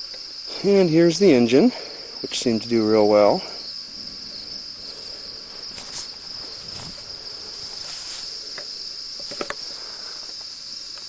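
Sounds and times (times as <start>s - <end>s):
high-pitched insect trill: 0.0s - 11.0s
faint clicks and rustles: 4.8s - 11.0s.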